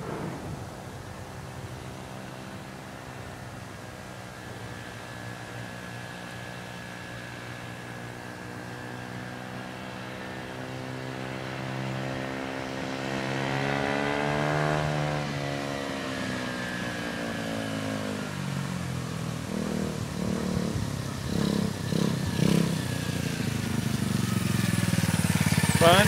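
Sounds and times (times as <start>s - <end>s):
dirt bike engine revving: 11.3s - 15.3s, 19.5s - 26.0s.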